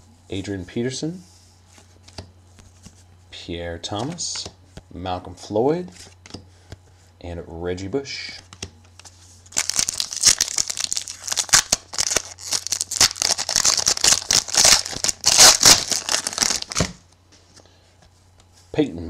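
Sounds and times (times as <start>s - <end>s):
plastic wrapper crinkling and tearing: 9.5s - 17.0s.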